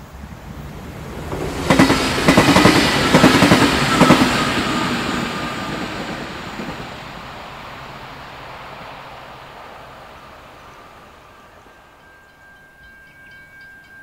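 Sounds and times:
train passing at speed: 0:00.0 - 0:14.0
train wheels clicking over track: 0:00.6 - 0:07.6.

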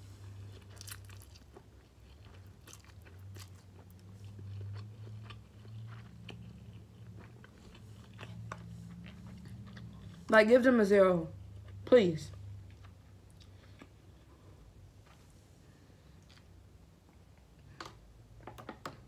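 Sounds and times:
low steady hum: 0:00.0 - 0:19.0
wet chewing clicks: 0:00.6 - 0:10.2.

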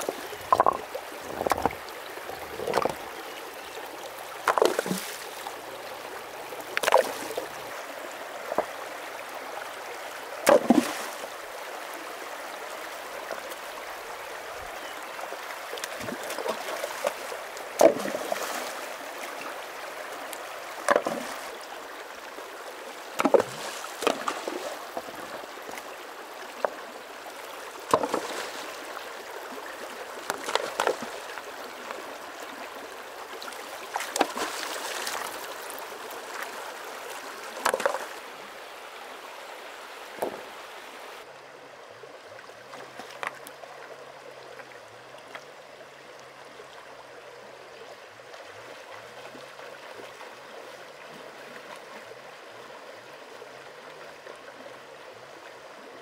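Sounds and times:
splashes and stone clunks: 0:00.0 - 0:03.1, 0:04.4 - 0:05.6, 0:06.7 - 0:07.6, 0:10.4 - 0:11.3, 0:15.8 - 0:18.9, 0:20.3 - 0:21.6, 0:23.2 - 0:25.9, 0:27.8 - 0:29.0, 0:30.2 - 0:32.0, 0:33.4 - 0:38.2, 0:40.1 - 0:40.6, 0:42.7 - 0:43.5
stream running over rocks: 0:00.0 - 0:56.0.

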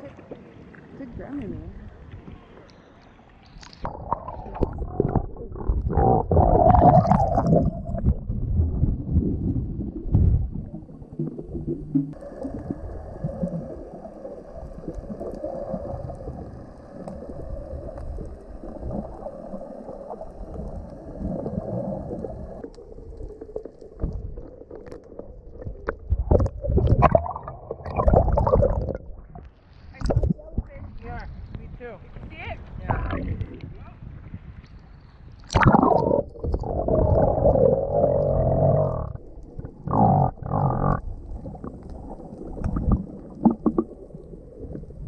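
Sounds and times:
muffled underwater sloshing: 0:00.0 - 0:45.0.

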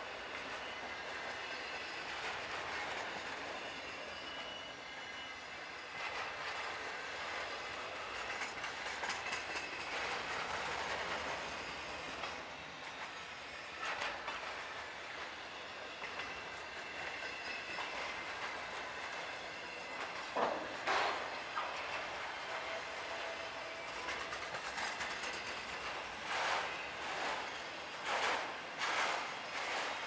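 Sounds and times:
train wheels rumbling and rattling: 0:00.0 - 0:30.0.

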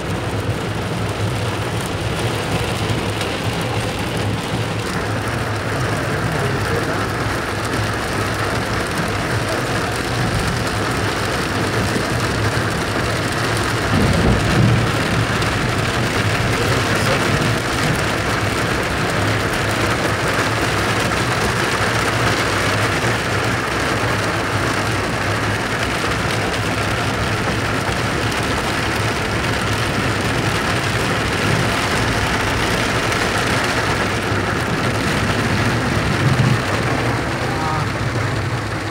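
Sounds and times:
rain and hail on car roof: 0:00.0 - 0:38.9
low rumble: 0:30.8 - 0:38.9.

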